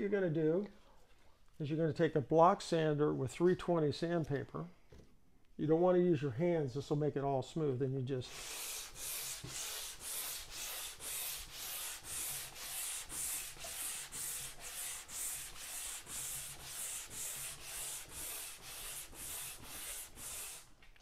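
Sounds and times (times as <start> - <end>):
sanding block scraping wet wood: 8.3 - 20.7.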